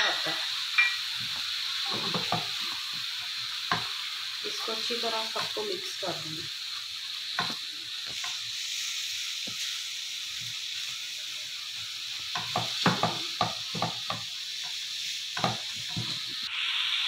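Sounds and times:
meat sizzling in a pan: 0.0s - 17.0s
spatula scraping and knocking pan: 1.9s - 2.8s, 7.3s - 8.4s, 12.3s - 16.4s.

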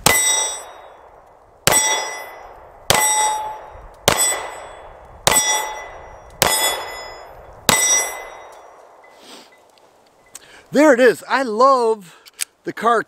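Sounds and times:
steel plate target clanging: 0.0s - 0.9s, 1.7s - 8.7s
pistol shots: 0.0s - 9.0s.

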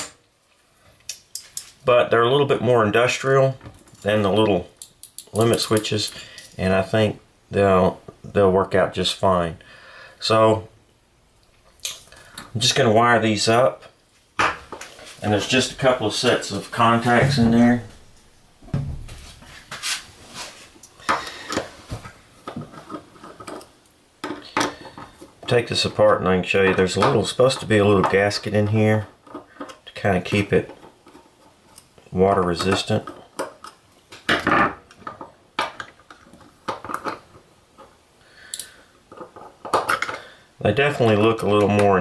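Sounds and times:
small metal clicks and taps: 4.8s - 6.5s.

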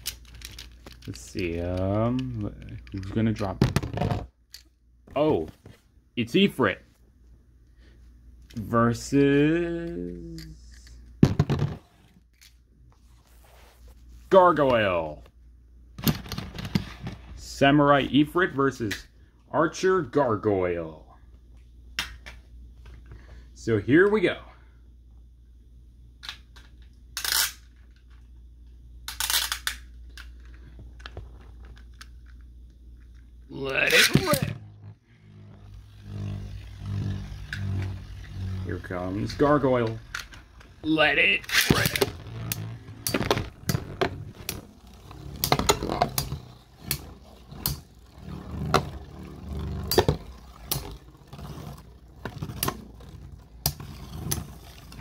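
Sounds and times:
spinning tops whirring: 33.5s - 55.0s.

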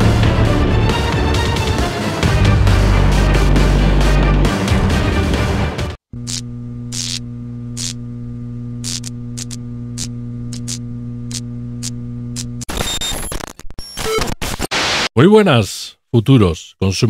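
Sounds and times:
music: 0.0s - 6.0s
neon sign buzzing: 6.1s - 13.0s
static crackles: 8.8s - 15.1s.

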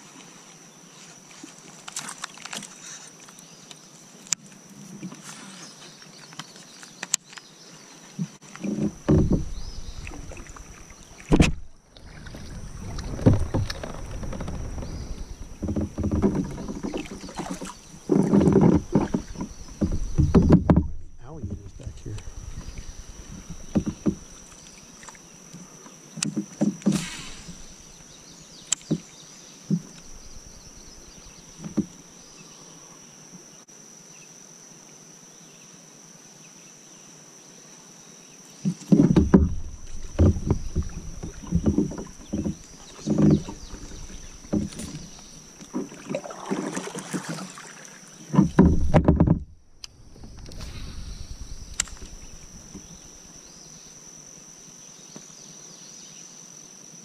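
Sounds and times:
high insect drone: 0.0s - 57.0s
knocks and bumps in a kayak: 8.2s - 32.3s, 38.6s - 53.9s.

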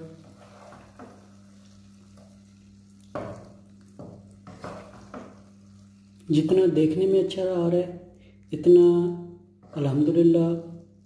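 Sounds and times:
wooden spatula scraping pot: 0.0s - 2.4s, 4.0s - 5.6s.

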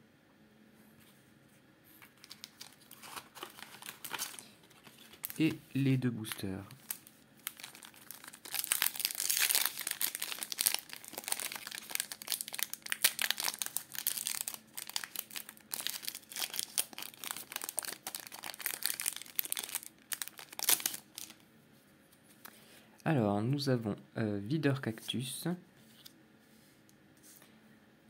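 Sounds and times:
foil wrapper crinkling: 2.0s - 5.6s, 6.2s - 21.4s.

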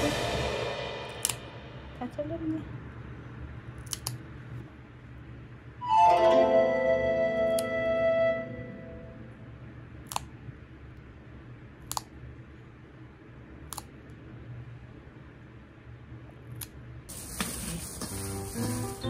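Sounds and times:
nail clippers clicking: 1.2s - 1.4s, 3.8s - 4.2s
held piano-like chord: 5.8s - 9.5s
frying sizzle: 17.1s - 19.0s.

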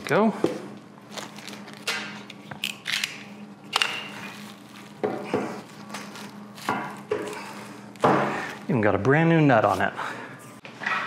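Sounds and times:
foil and plastic crinkling: 1.0s - 1.9s, 4.1s - 7.8s.

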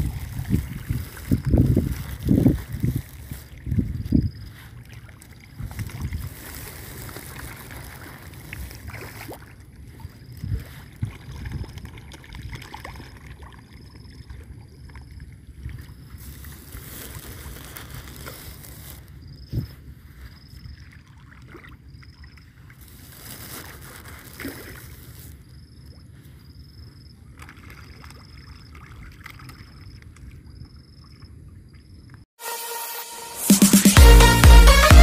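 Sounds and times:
wind on microphone: 0.0s - 4.8s, 5.5s - 7.2s, 9.9s - 12.7s, 19.4s - 20.3s.

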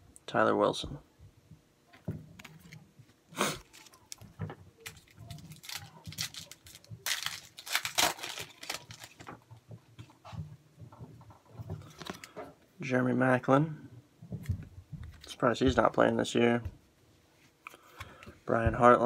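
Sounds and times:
cards rustling and flicking: 2.4s - 9.4s, 11.8s - 12.4s.

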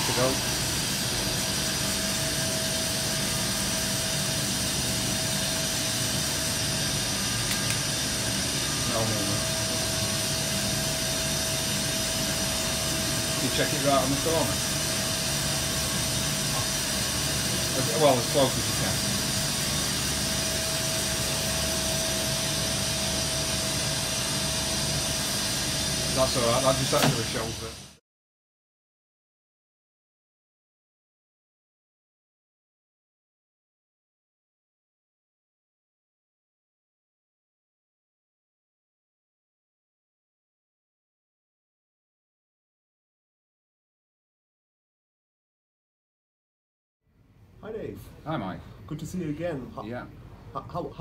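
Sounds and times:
cnc machine hiss and hum: 0.0s - 28.0s
thin steady whine: 0.0s - 28.0s.

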